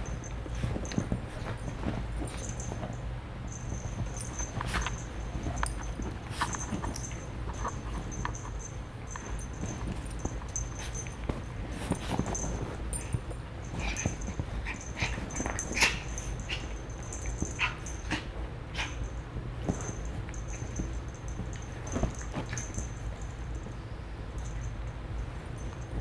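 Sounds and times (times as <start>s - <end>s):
paws scuffling on cushion: 0.0s - 26.0s
small dogs yipping and growling: 11.9s - 24.8s.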